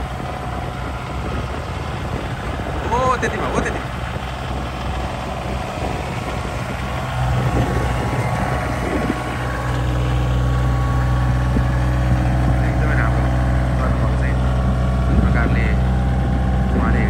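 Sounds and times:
loader bucket pushing snow: 0.0 - 17.0
tractor diesel engine running: 0.0 - 17.0.

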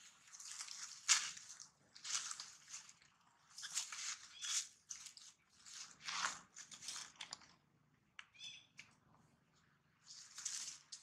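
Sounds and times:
dry leaves rustling and crunching: 0.0 - 7.4, 10.0 - 11.0.

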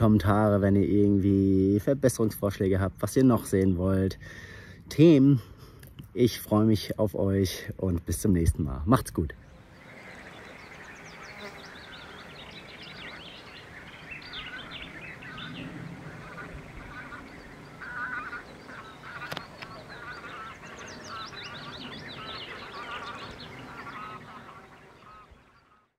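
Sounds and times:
birds chirping and singing: 9.3 - 25.9.

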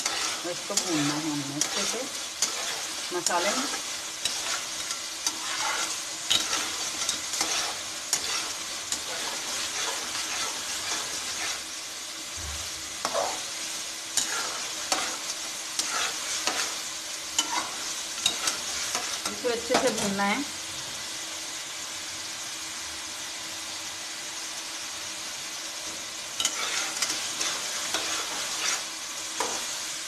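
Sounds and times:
spatula scraping a metal pan: 0.0 - 11.8, 13.0 - 20.1, 26.4 - 29.7
lentils sizzling in oil: 0.0 - 30.0.

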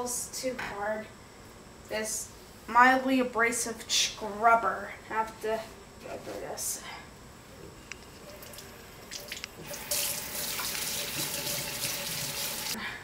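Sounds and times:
faucet water running into sink: 8.2 - 12.8
plastic parts being rinsed: 8.2 - 12.8.

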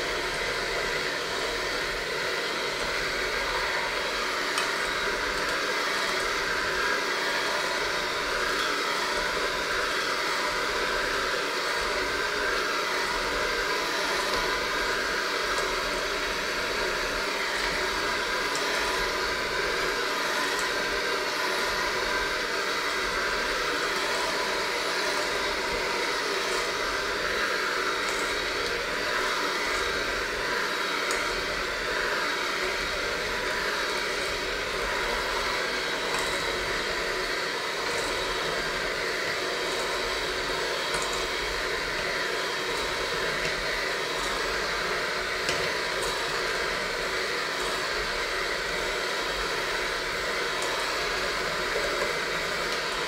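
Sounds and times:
electric hand mixer churning dough: 0.0 - 53.0.

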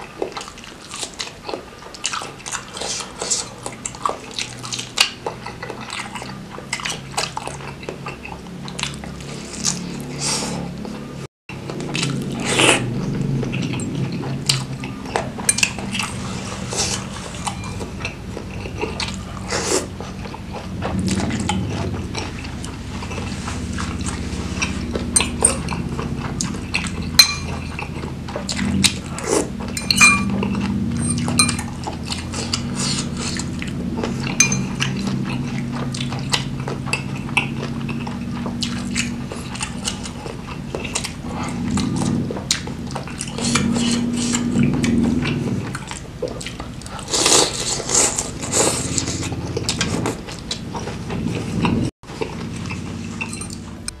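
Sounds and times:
chewing: 0.0 - 54.0
cutlery clinking on bowls: 15.4 - 16.0, 26.7 - 27.9, 29.7 - 31.8, 34.4 - 35.5, 52.6 - 54.0.

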